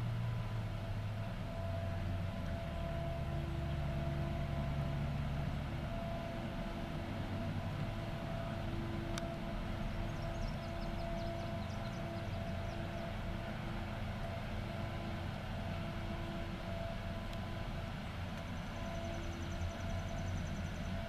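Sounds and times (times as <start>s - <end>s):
constant machine whine: 0.0s - 21.0s
distant diesel engine running: 0.0s - 21.0s.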